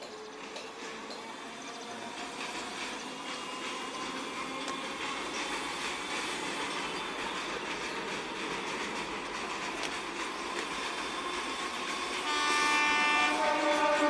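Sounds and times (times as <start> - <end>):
train running over bridge: 0.0 - 14.0
train horn: 12.2 - 14.0.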